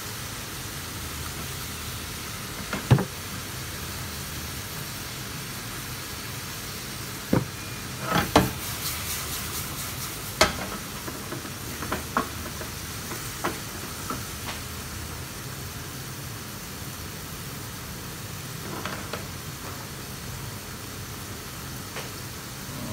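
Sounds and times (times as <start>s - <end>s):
food frying in a pan: 0.0s - 22.9s
utensil clanking on a pan: 10.4s - 14.2s.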